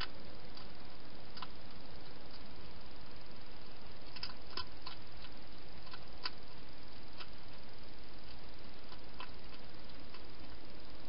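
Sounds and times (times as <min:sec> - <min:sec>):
hedgehog chewing clicks: 0:00.0 - 0:02.5, 0:04.0 - 0:07.4, 0:08.2 - 0:10.3
steady hiss: 0:00.0 - 0:11.0.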